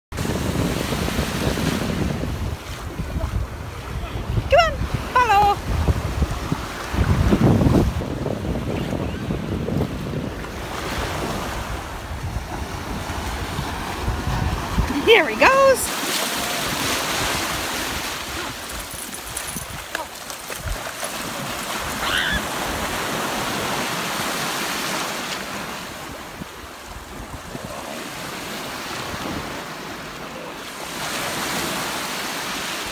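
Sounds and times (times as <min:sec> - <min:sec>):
wind on microphone: 0:00.1 - 0:23.9, 0:25.9 - 0:29.7
sea surf breaking: 0:00.1 - 0:32.9
water splashing around wading legs: 0:15.4 - 0:23.1.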